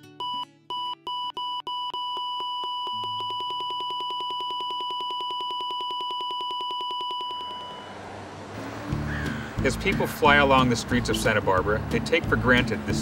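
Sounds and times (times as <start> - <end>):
metal detector beeping: 0.2 - 8.0.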